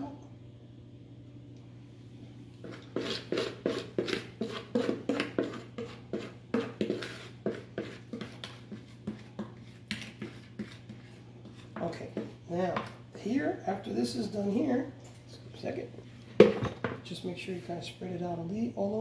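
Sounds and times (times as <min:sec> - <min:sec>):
steady low hum: 0:00.0 - 0:19.0
wooden spoon scraping a bowl: 0:02.6 - 0:13.0.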